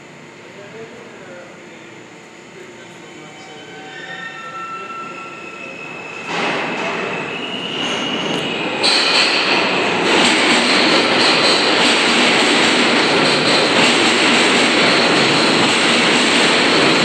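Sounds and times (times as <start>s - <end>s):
subway train running noise: 0.0s - 17.0s
high squealing tones: 3.1s - 8.7s.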